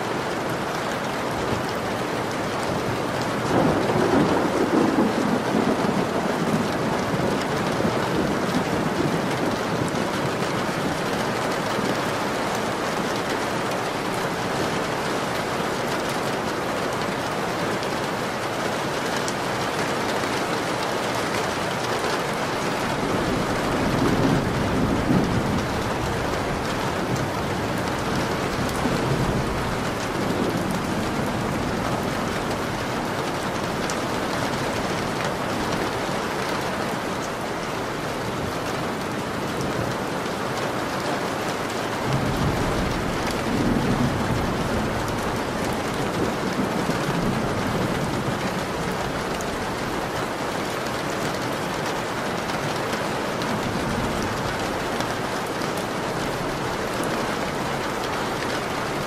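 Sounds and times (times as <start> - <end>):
steady rain: 0.0 - 59.0
low thunder rolls: 3.4 - 11.2, 22.8 - 35.4, 42.0 - 49.8.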